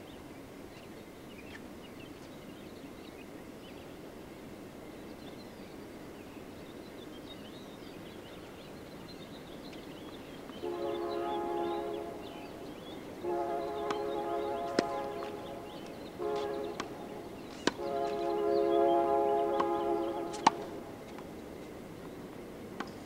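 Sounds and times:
horn blasts: 10.6 - 21.1
tennis racket hitting ball: 14.7 - 15.3, 16.8 - 17.8, 19.6 - 21.2.

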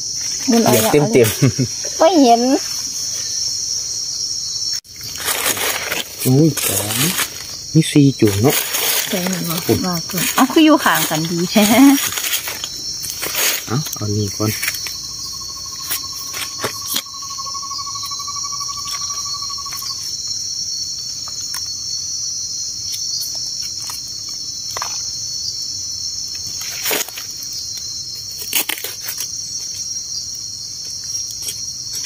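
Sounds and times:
insect chorus: 0.0 - 32.0
digging in leaf litter: 4.9 - 14.9.

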